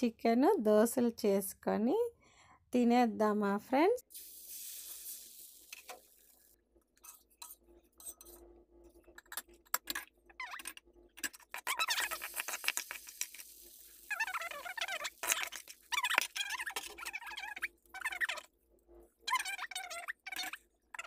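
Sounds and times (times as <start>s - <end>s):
batter sizzling: 4.0s - 6.6s, 11.5s - 18.3s.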